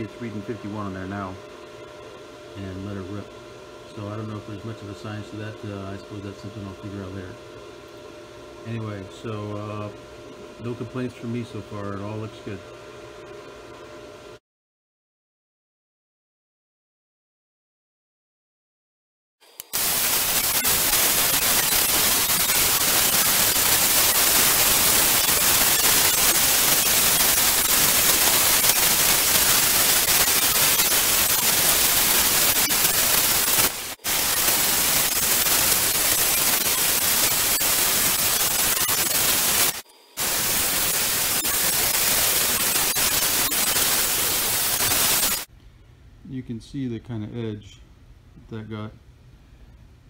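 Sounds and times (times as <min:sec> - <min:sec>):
plasma cutter hissing: 0:19.6 - 0:45.5.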